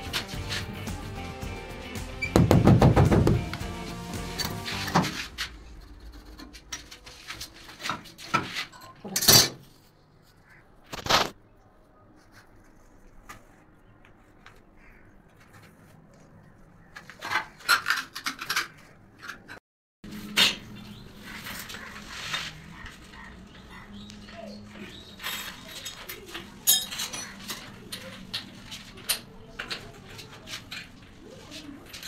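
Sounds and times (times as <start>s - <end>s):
clicks and knocks of hard objects: 15.3s - 19.6s.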